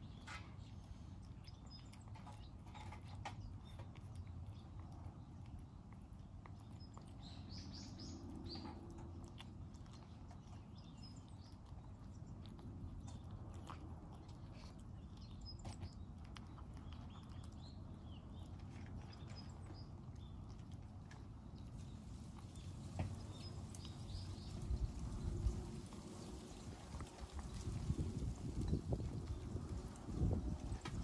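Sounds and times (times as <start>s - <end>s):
cat chewing food: 0.0s - 31.0s
small birds chirping: 0.0s - 31.0s.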